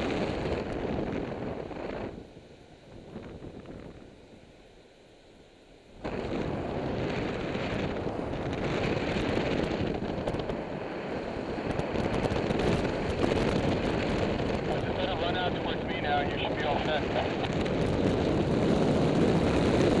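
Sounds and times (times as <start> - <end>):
airflow buffeting microphone: 0.0 - 20.0.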